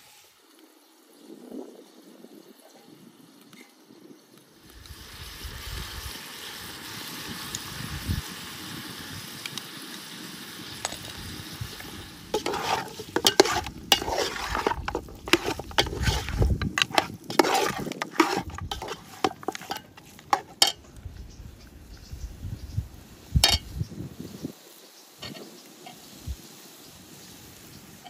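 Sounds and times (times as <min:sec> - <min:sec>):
faint sizzle: 0:00.0 - 0:28.0
metal spoon scraping pot: 0:12.3 - 0:20.8, 0:23.4 - 0:23.6.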